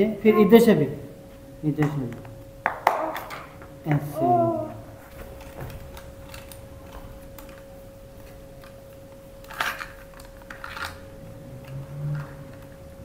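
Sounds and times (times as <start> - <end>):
faint steady hum: 0.0 - 13.0
plastic toy pieces clicking: 9.4 - 11.0.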